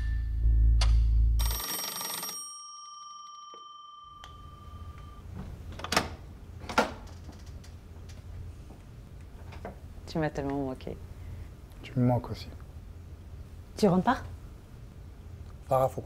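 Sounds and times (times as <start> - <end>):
electronic doorbell ringing: 1.4 - 5.3
soft footsteps: 7.8 - 10.6.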